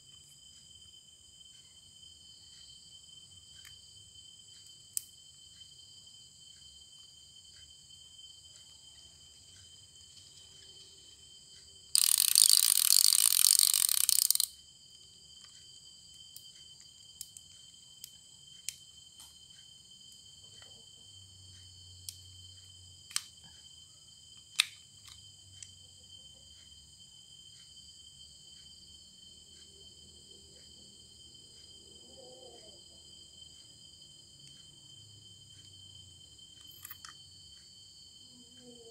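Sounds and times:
crickets chirring: 0:00.0 - 0:38.9
clicks and taps of fishing reel parts: 0:12.0 - 0:14.6.

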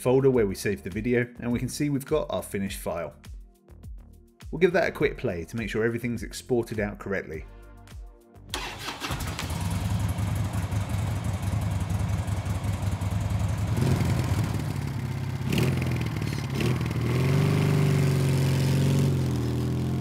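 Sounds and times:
motorcycle engine revving: 0:08.6 - 0:20.0.

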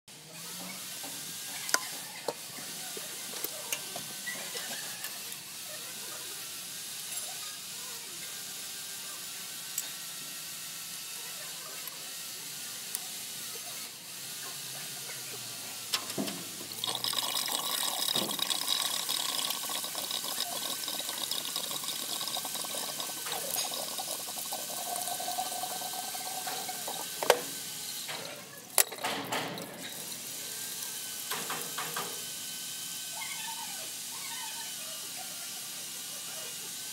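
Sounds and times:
coolant gushing and splashing: 0:16.1 - 0:27.6.

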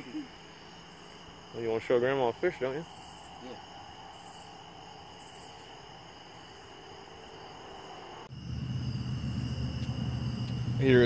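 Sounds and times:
crickets and insects trilling: 0:00.0 - 0:11.0
low steady rumble: 0:08.3 - 0:11.0.

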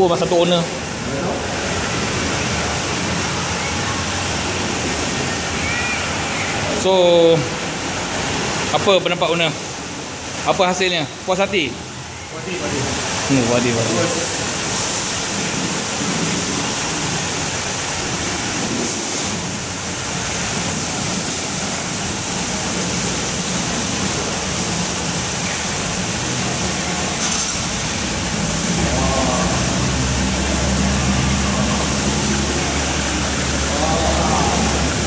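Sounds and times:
water spraying hiss: 0:00.0 - 0:35.0.

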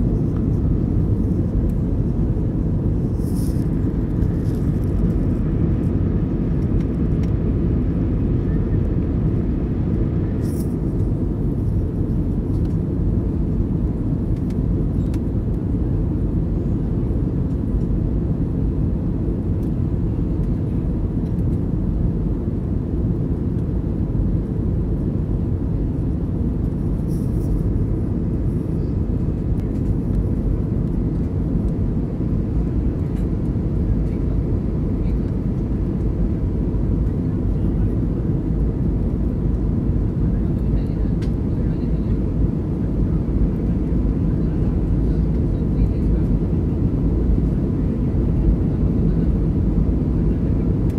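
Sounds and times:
airplane cabin engine noise: 0:00.0 - 0:50.9.

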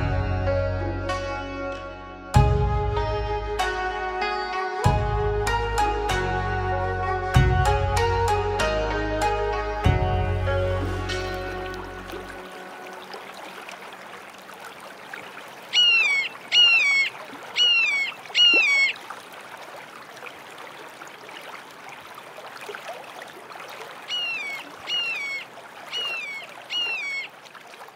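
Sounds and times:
bird calling falling note: 0:15.7 - 0:19.0, 0:24.1 - 0:27.4.

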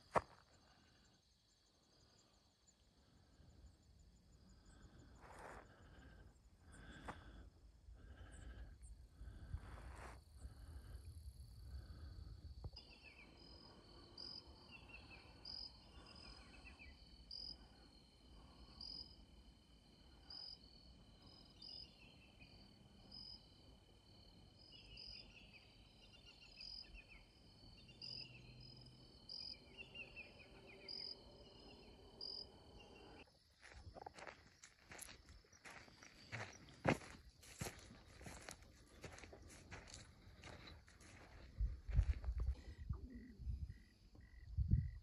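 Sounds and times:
insect chirp: 0:00.0 - 0:45.0.

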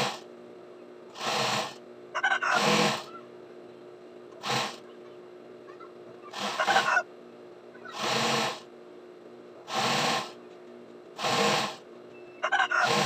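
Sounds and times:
sewing machine stitching: 0:00.0 - 0:00.2, 0:01.2 - 0:01.8, 0:04.4 - 0:04.8, 0:06.3 - 0:06.9, 0:08.0 - 0:08.6, 0:09.7 - 0:10.4, 0:11.2 - 0:11.8
motor hum: 0:00.0 - 0:13.0.

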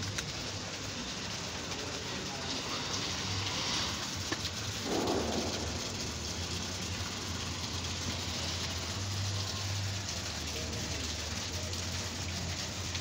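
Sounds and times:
fireworks crackling hiss: 0:00.0 - 0:13.0
dull firework bang: 0:04.8 - 0:06.9
sharp firework pop: 0:04.8 - 0:06.9.

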